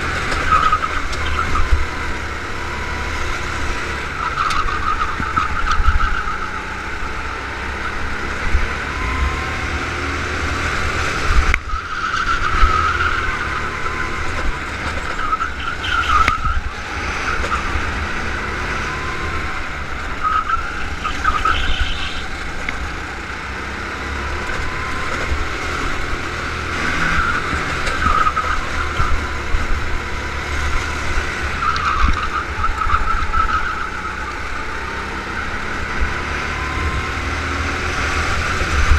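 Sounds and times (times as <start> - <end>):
go-kart engine revving: 0.0 - 38.9
constant low rumble: 19.5 - 23.4.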